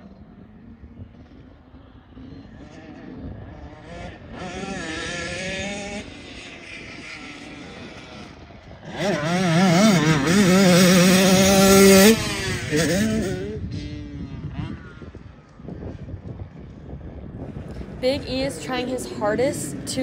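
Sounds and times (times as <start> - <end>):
dirt bike engine revving: 1.7 - 16.1.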